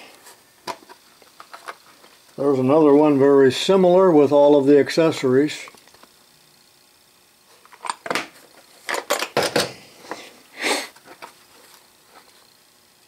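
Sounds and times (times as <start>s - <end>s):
case set down: 7.8s - 9.8s.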